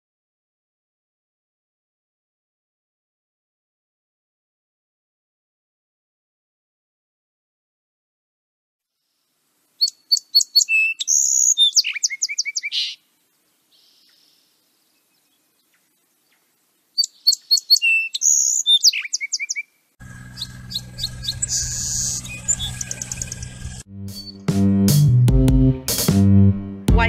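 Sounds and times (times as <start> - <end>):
song sparrow singing: 9.8 - 13.0, 13.7 - 24.5.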